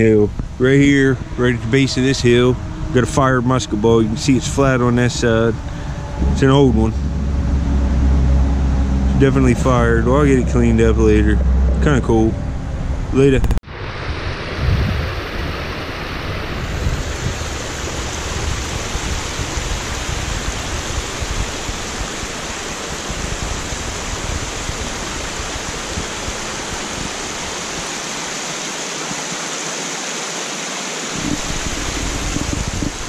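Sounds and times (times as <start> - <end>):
low rumble: 0.0 - 15.3
water rushing down rocky channel: 13.7 - 33.0.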